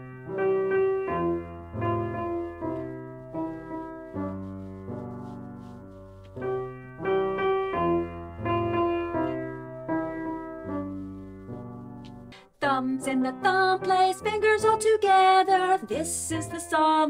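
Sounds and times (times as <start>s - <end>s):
piano melody with chords: 0.0s - 12.4s, 13.0s - 17.0s.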